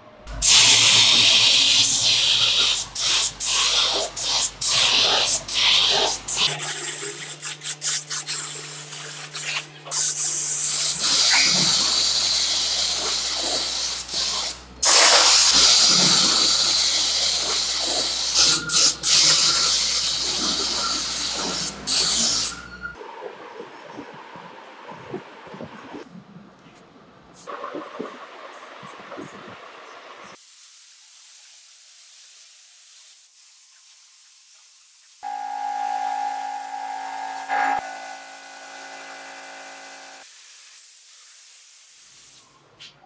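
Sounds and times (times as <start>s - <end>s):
spray gun hissing: 0.3s - 22.6s, 35.2s - 42.4s.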